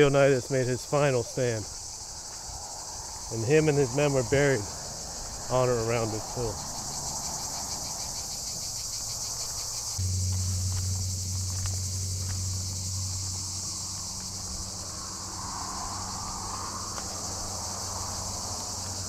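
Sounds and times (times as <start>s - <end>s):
insects shrilling: 0.0s - 19.0s
low steady hum: 10.0s - 17.7s.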